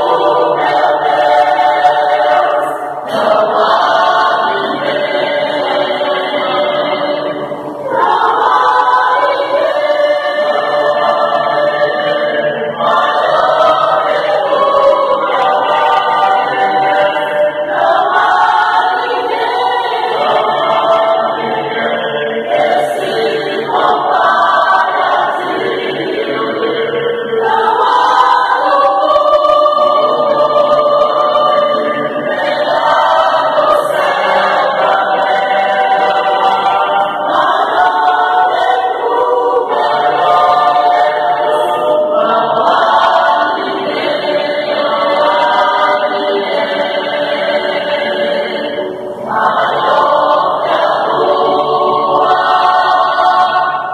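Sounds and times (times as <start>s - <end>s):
church choir singing a hymn: 0.0s - 53.9s.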